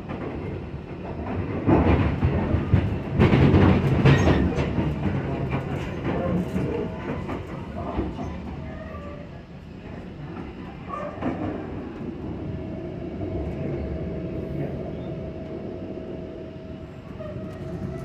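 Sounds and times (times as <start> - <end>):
train running rumble: 0.0 - 18.0
wheels clattering over track: 1.0 - 8.6.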